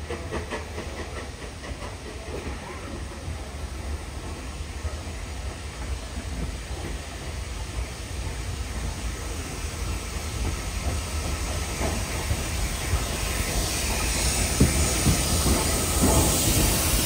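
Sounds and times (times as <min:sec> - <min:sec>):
steam train hiss and rumble: 0:00.0 - 0:17.0.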